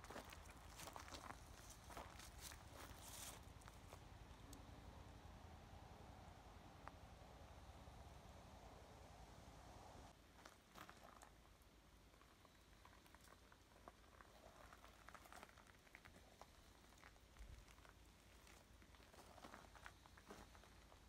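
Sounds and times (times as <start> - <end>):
faint ticks and crackles: 0.0 - 4.9, 10.3 - 21.0.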